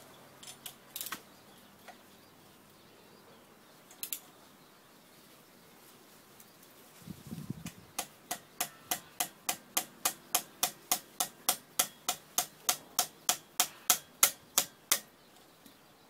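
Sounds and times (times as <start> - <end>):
hammer tapping on metal tool: 8.0 - 15.1.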